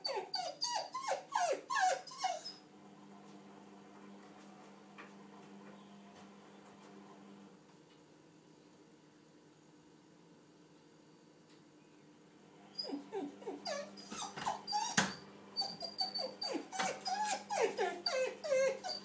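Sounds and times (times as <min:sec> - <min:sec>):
small dog whining: 0:00.0 - 0:02.6, 0:12.7 - 0:19.0.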